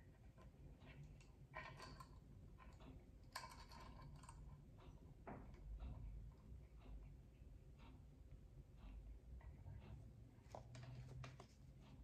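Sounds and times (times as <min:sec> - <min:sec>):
metal ring clicking and scraping: 0:00.4 - 0:04.9.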